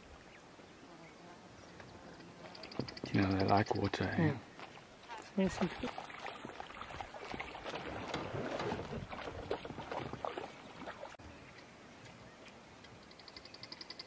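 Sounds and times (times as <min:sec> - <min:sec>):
water splashing and sloshing: 0:02.4 - 0:11.2.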